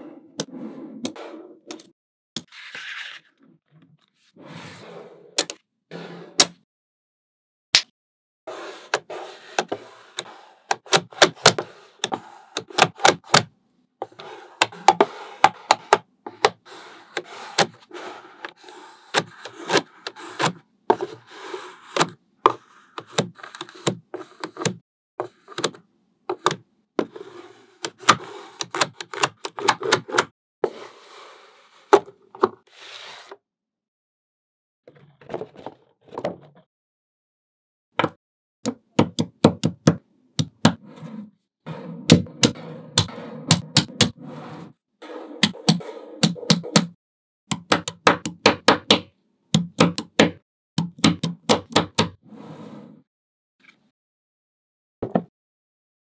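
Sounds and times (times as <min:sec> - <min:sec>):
balls rubbing and scraping: 0:08.5 - 0:12.7, 0:14.0 - 0:25.6, 0:27.0 - 0:33.4, 0:40.8 - 0:46.5.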